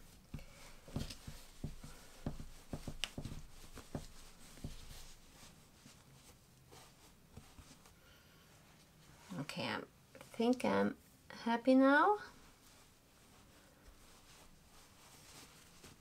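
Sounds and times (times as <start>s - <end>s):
stuffing rustling: 12.6s - 16.0s.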